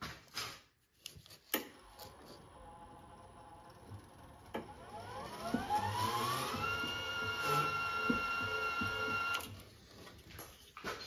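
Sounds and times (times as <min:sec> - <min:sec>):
wire-feed motor whine: 0:01.8 - 0:09.7.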